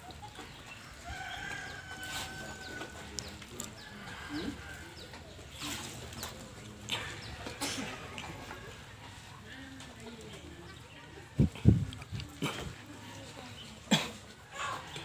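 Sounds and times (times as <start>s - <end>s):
small birds chirping: 0.0s - 7.6s
rooster crowing: 1.1s - 3.0s.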